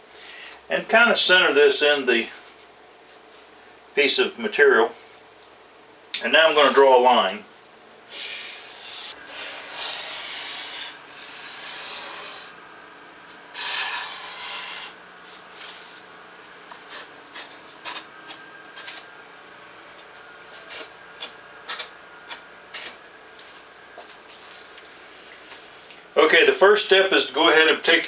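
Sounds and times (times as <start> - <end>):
pencil scratching on plywood: 8.2 - 12.5, 13.6 - 15.0.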